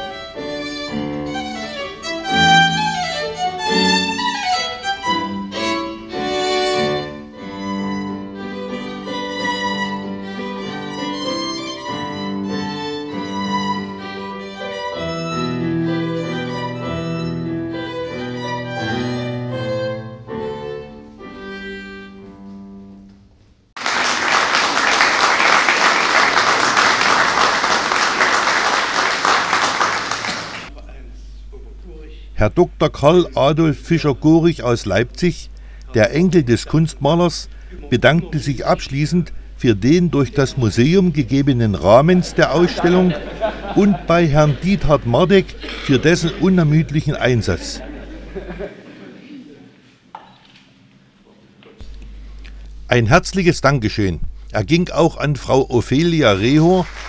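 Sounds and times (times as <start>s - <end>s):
violin with keyboard playing: 0.0s - 22.6s, 33.1s - 47.8s
audience applause: 23.8s - 30.7s, 41.8s - 48.8s, 56.4s - 57.0s.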